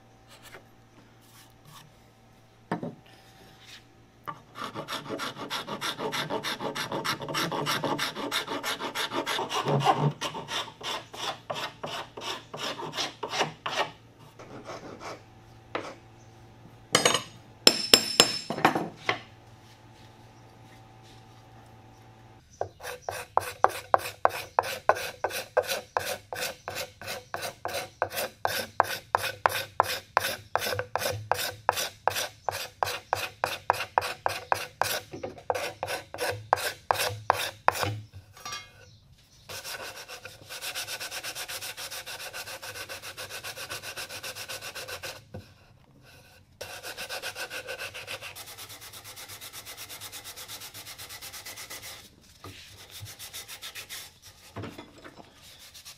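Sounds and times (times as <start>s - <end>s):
hand file stroking wood: 4.5s - 15.2s, 22.6s - 38.0s, 39.5s - 45.2s, 46.0s - 54.6s.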